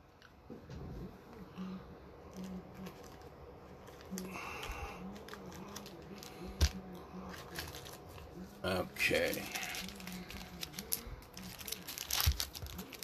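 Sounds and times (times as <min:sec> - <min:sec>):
foil packs rustling: 0:03.8 - 0:13.0.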